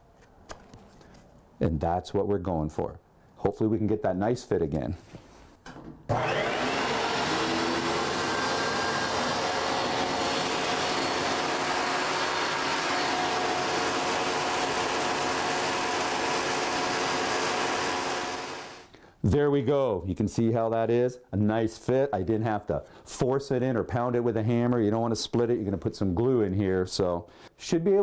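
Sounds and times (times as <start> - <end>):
table saw running: 6.1 - 18.9.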